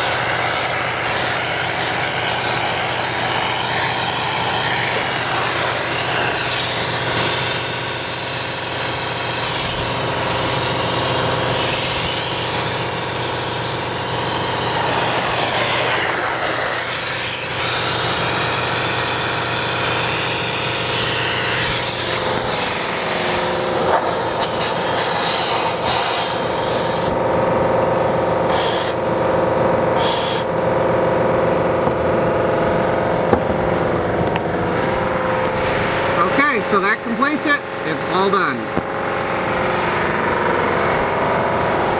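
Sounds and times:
spray foam gun hissing: 0.0 - 27.2, 27.9 - 30.6
mechanical hum of spray rig: 0.0 - 41.9.

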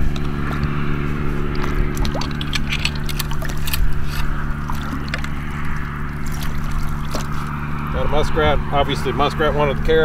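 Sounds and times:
water sloshing and dripping: 0.0 - 7.9
low hum: 0.0 - 10.0
splashes: 0.3 - 7.9
chain being pulled: 2.0 - 4.3.

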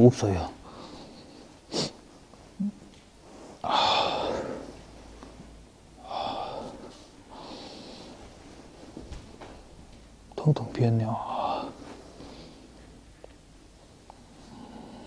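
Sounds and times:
person sniffing: 1.7 - 2.0.

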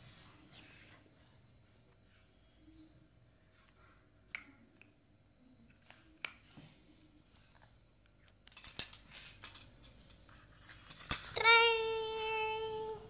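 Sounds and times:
child humming like a grinder: 11.4 - 13.0.

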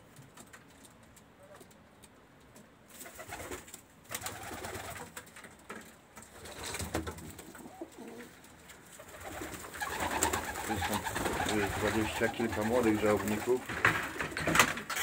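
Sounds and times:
pigeons cooing: 6.4 - 13.6.

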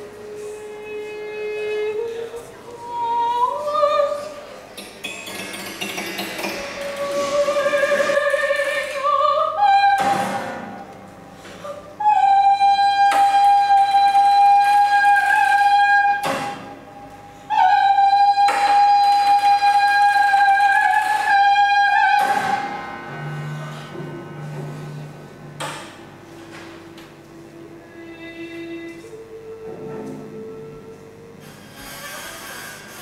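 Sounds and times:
woman singing high held notes: 6.6 - 25.2, 26.8 - 31.6.

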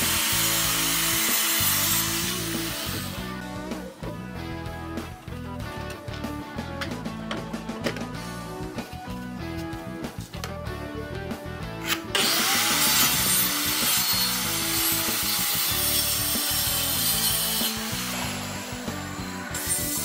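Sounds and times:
circular saw cutting wood: 0.0 - 3.9, 11.8 - 20.0
background music: 0.0 - 20.0.

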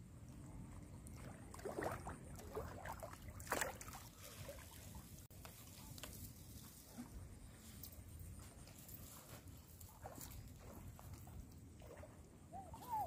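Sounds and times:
fish thrashing and splashing in water: 1.3 - 4.8.

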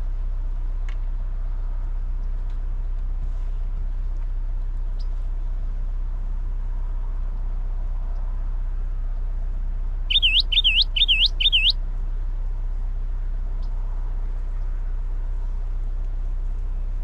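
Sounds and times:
steady low rumble: 0.0 - 17.0
songbird whistled notes: 10.1 - 11.8.

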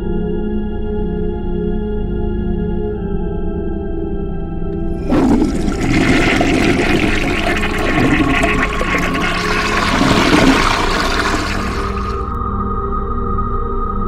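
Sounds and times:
toilet flushing: 4.8 - 12.4.

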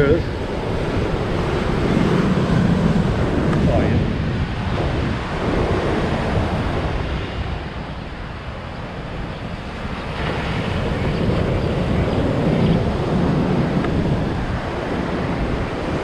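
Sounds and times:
wind buffeting microphone: 0.0 - 16.0
surf breaking on beach: 0.3 - 8.5.

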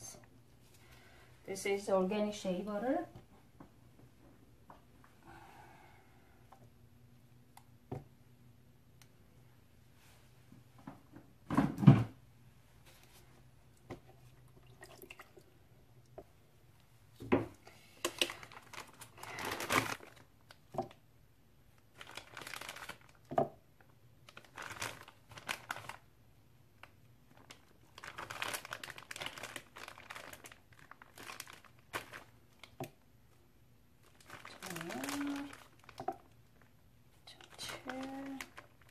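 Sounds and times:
plastic bag crinkling: 17.9 - 20.6, 21.8 - 26.1, 26.8 - 32.8, 34.0 - 38.9.

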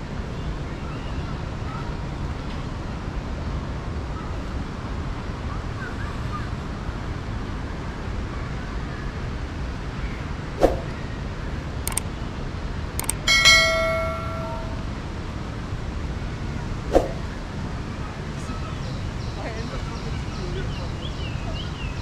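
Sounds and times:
city traffic rumble: 0.0 - 22.0
short sharp sound: 10.6 - 10.9
faint clicks: 11.9 - 12.1, 13.0 - 13.2.

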